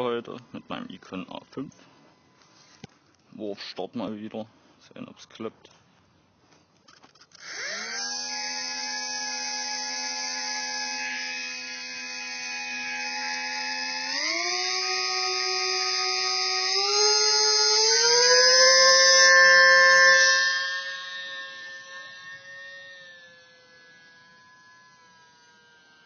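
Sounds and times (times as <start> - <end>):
model plane motor whine: 6.9 - 26.0.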